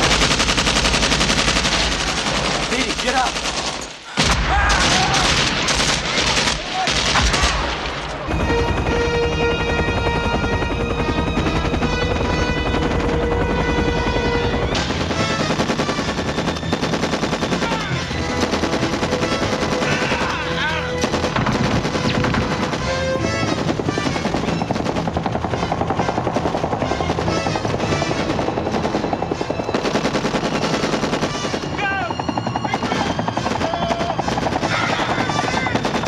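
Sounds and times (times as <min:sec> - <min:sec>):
machine gun automatic fire: 0:00.0 - 0:04.0, 0:04.8 - 0:36.0
voices shouting: 0:17.4 - 0:18.4, 0:19.6 - 0:21.1, 0:31.6 - 0:36.0.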